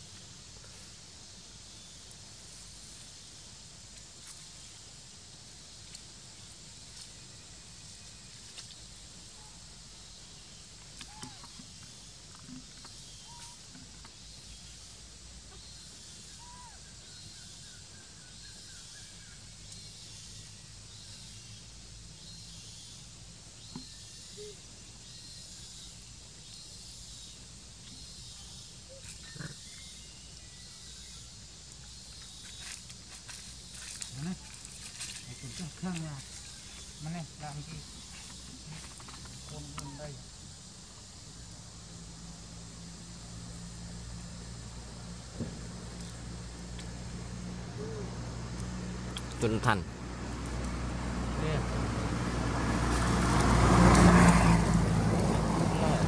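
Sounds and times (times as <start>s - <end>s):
light clicks and rustles: 37.9s - 39.9s.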